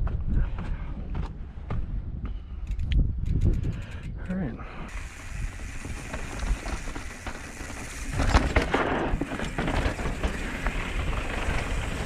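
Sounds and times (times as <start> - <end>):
bike rattling and clattering: 4.9 - 12.0
bike tyres crunching over dirt: 4.9 - 12.0.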